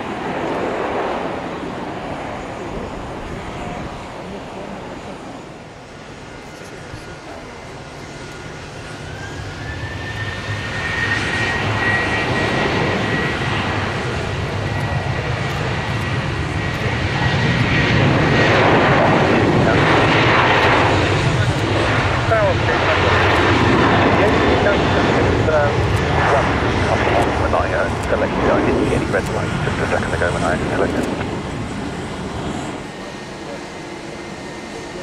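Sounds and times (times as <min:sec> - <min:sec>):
jet engines running up: 0:00.0 - 0:35.0.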